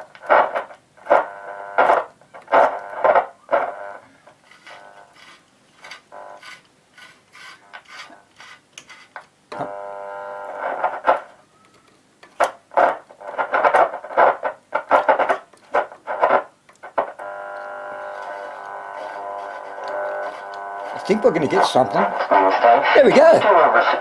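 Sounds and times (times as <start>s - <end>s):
radio music: 0.0s - 1.2s, 10.6s - 11.6s, 12.4s - 24.0s
radio speaker crackling: 0.0s - 8.9s, 9.5s - 9.8s, 10.5s - 24.0s.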